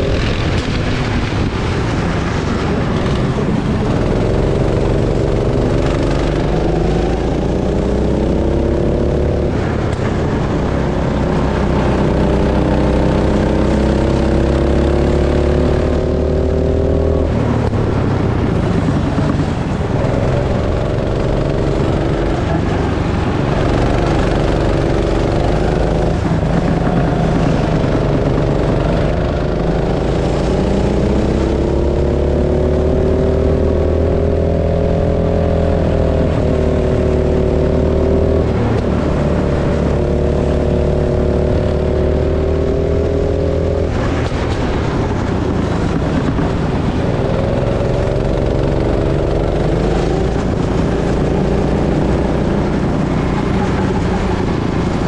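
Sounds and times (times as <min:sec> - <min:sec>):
go-kart engine accelerating: 0:00.0 - 0:55.0.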